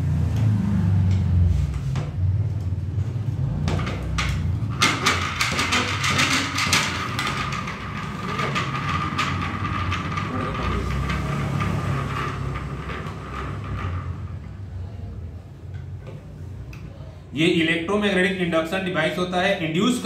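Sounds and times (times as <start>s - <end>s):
fast rattling clatter: 3.7s - 14.8s.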